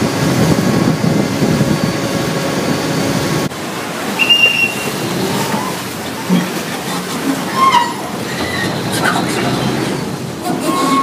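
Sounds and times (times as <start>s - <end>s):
boat engine running: 0.0s - 11.0s
churning boat wake: 0.0s - 11.0s
shrill whistle blast: 4.2s - 4.9s.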